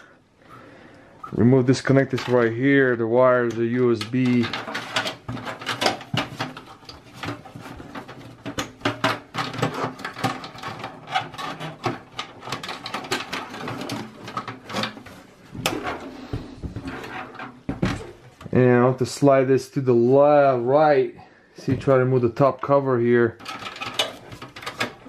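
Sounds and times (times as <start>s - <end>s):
cable connector clicking and rattling: 23.4s - 25.0s.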